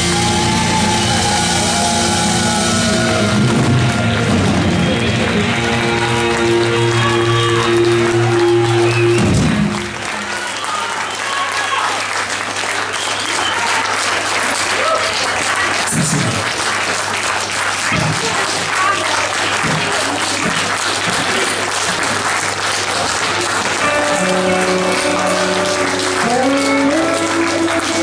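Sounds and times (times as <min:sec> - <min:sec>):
band playing: 0:00.0 - 0:10.6, 0:23.6 - 0:28.0
audience applauding: 0:00.0 - 0:28.0.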